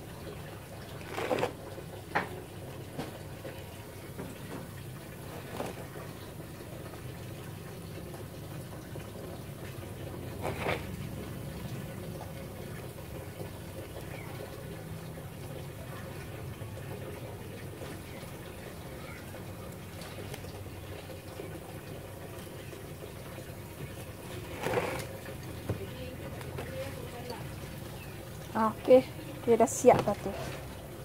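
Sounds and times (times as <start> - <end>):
potting medium rustling and scraping: 0.7 - 1.9, 5.0 - 6.4, 10.1 - 11.7, 23.8 - 26.8, 28.9 - 31.0.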